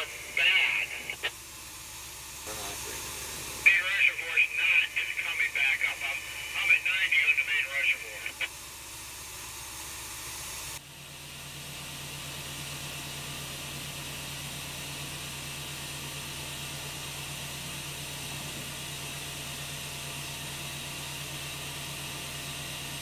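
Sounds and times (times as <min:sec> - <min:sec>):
low steady hum: 0:00.0 - 0:09.4.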